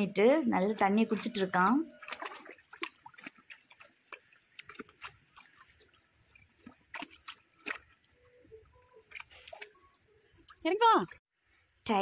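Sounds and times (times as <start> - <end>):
dog lapping water: 0.1 - 8.1, 9.0 - 9.8.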